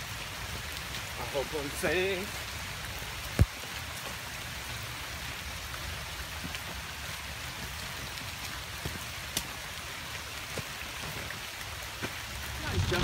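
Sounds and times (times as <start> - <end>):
heavy rain falling: 0.0 - 13.0
raindrop ticks: 0.5 - 4.2, 7.5 - 13.0.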